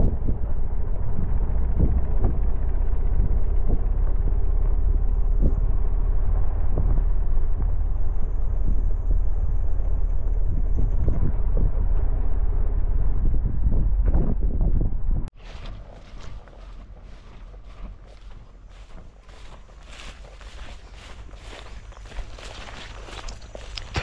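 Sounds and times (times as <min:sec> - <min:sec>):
vehicle rumbling on dirt road: 0:00.0 - 0:24.0
wind buffeting microphone: 0:00.0 - 0:24.0.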